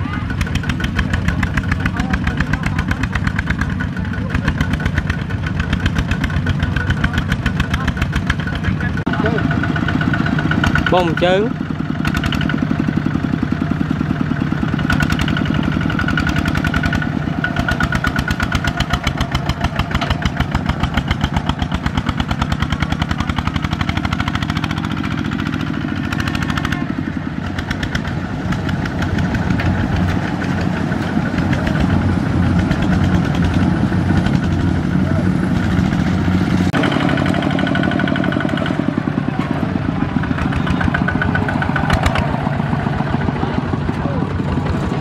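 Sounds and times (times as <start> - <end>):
diesel engine running: 0.0 - 45.0.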